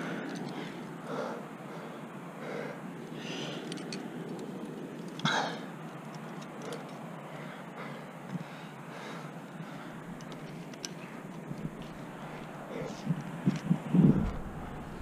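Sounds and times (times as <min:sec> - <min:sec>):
person breathing hard: 0:00.0 - 0:03.7, 0:06.6 - 0:10.1.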